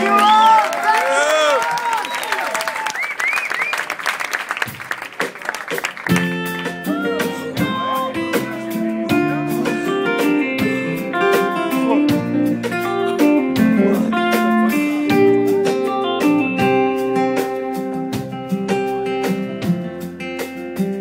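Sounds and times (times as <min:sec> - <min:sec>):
drums: 0:00.0 - 0:21.0
bass guitar: 0:05.8 - 0:21.0
strummed acoustic guitar: 0:06.1 - 0:21.0.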